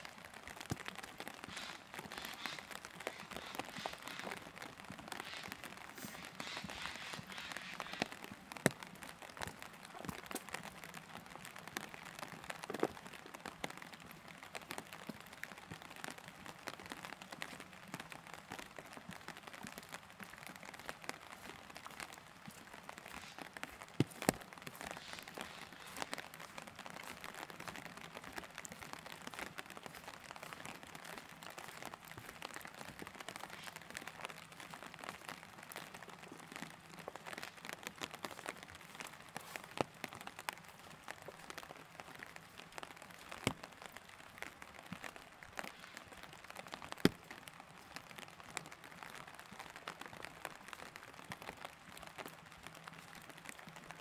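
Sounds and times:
light rain pattering: 0.0s - 54.0s.

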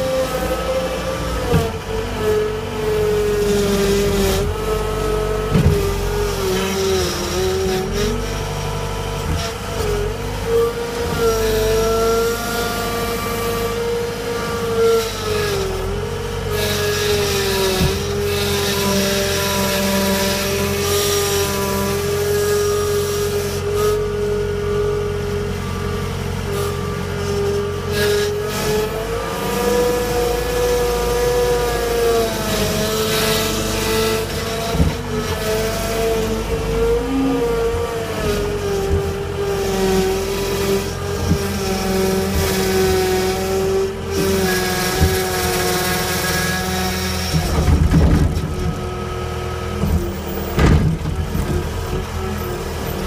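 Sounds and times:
skid steer engine whine: 0.0s - 53.0s.

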